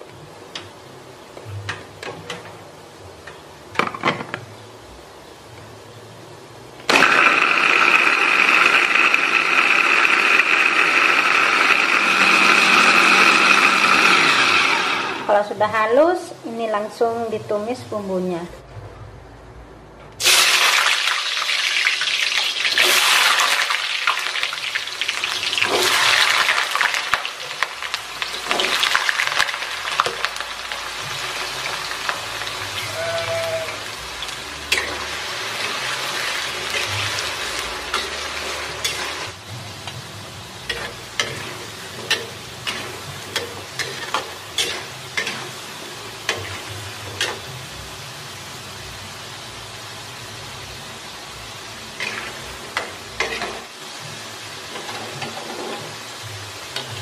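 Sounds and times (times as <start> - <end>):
potatoes deep-frying in oil: 0.0 - 18.3, 20.2 - 57.0
oil popping and crackling: 20.2 - 32.1.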